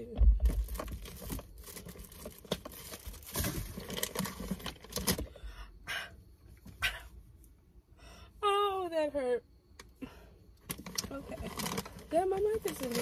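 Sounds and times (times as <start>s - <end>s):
items rustling and knocking: 0.0s - 5.3s, 10.6s - 13.0s.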